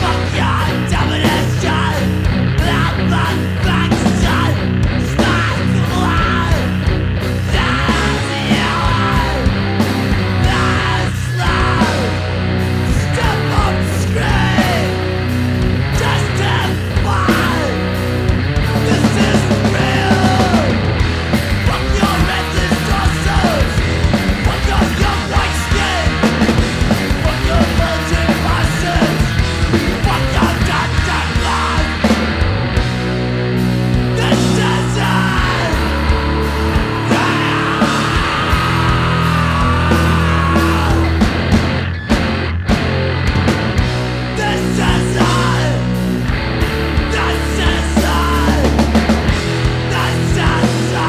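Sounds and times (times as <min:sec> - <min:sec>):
shouted vocals: 0:00.0 - 0:18.0, 0:18.7 - 0:21.0, 0:21.6 - 0:26.5, 0:27.1 - 0:32.2, 0:33.9 - 0:41.5, 0:44.2 - 0:46.0, 0:46.9 - 0:51.0
busy drums: 0:00.0 - 0:51.0
distorted electric guitar: 0:00.0 - 0:51.0
punk band playing: 0:00.0 - 0:51.0
person shouting vocals: 0:34.1 - 0:41.2.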